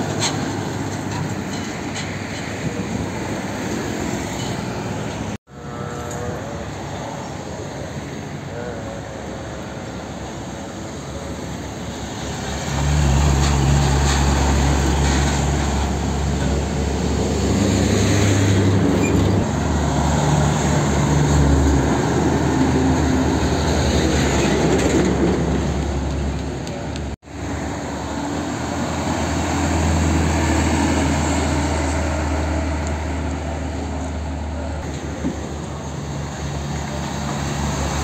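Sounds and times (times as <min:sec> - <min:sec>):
diesel trucks driving past: 0:00.0 - 0:38.0
tyre and road noise: 0:00.0 - 0:38.0.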